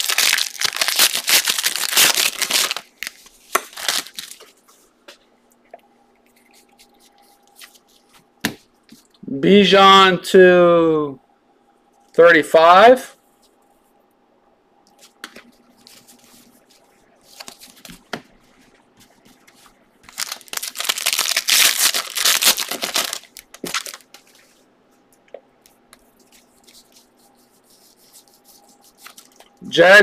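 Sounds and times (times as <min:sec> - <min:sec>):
foil pack tearing and crinkling: 0:00.0 - 0:04.4, 0:20.1 - 0:24.1
cards rustling while handled: 0:00.0 - 0:04.7, 0:15.0 - 0:18.0, 0:19.1 - 0:24.5, 0:26.0 - 0:29.5.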